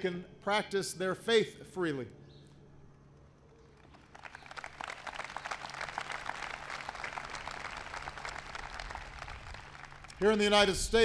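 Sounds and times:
crowd applauding: 3.6 - 10.6.

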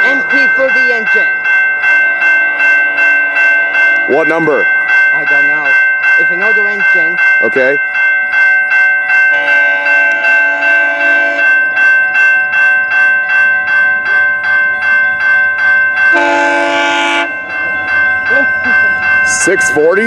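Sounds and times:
railroad crossing bell ringing: 0.0 - 20.0
locomotive horn blasts: 9.3 - 11.5, 16.1 - 17.5.

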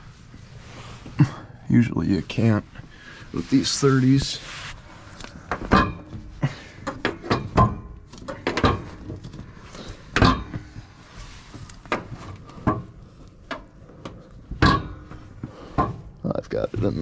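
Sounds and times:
knocks and clunks on machine frame: 5.5 - 9.4, 10.1 - 10.8, 14.5 - 16.2.

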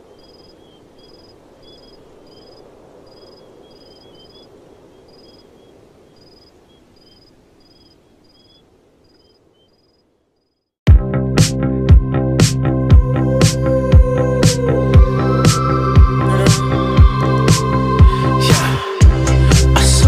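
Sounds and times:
cricket chirping: 0.0 - 10.8
steady low rush: 11.2 - 20.0.

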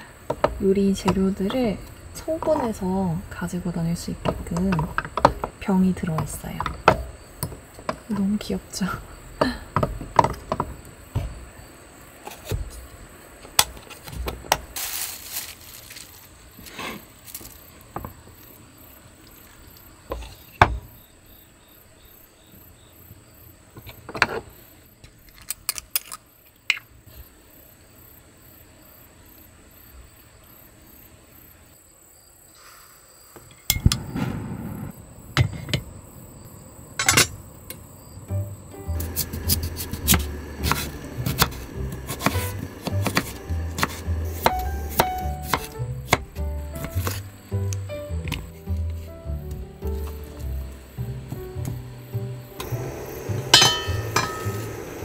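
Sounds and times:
crickets chirping: 0.0 - 55.0
gas stove burner hissing: 32.6 - 47.8, 50.4 - 55.0
glass jars clinking: 53.5 - 54.8.

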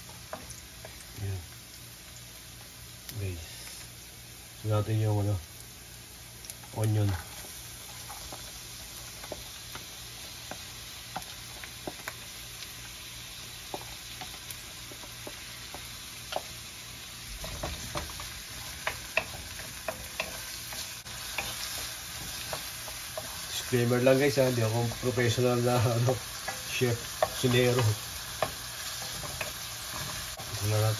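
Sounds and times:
onion sizzling in frying pan: 0.0 - 30.9
spatula scraping in pan: 17.3 - 30.9.

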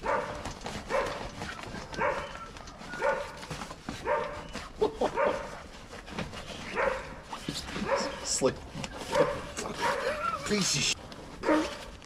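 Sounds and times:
dog barking: 0.0 - 4.5, 5.1 - 5.6, 6.6 - 8.3, 9.0 - 10.3, 11.4 - 11.9.

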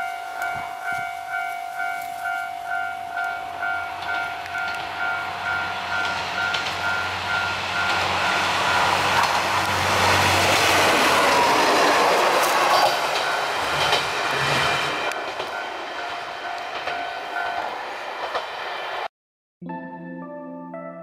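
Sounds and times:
level crossing alarm dinging: 0.0 - 9.2, 13.0 - 14.0
diesel railcar approaching: 0.0 - 19.1.

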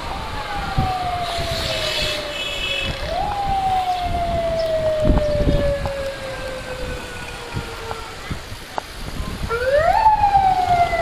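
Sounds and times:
siren wailing: 0.0 - 8.5, 9.5 - 11.0
traffic rumble: 0.0 - 11.0
wind thumps on microphone: 2.8 - 11.0.

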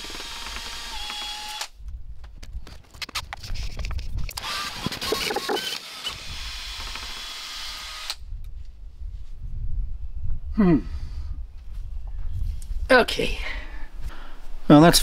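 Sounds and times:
cordless drill motor running: 0.0 - 1.7, 4.4 - 8.2.

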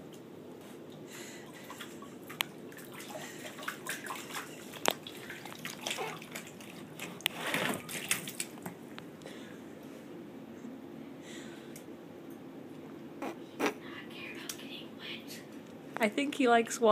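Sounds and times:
water dripping: 0.9 - 7.3
puppy splashing water in bowl: 1.5 - 8.8.

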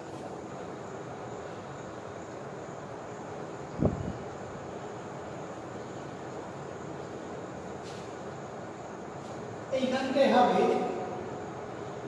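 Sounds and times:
room noise: 0.0 - 12.0.

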